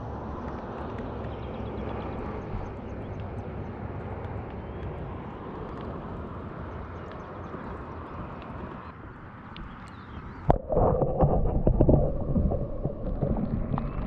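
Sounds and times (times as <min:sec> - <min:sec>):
underwater water rushing: 0:10.4 - 0:14.0.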